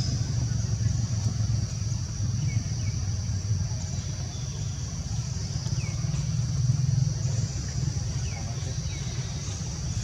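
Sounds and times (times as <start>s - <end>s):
insect drone: 0.0s - 10.0s.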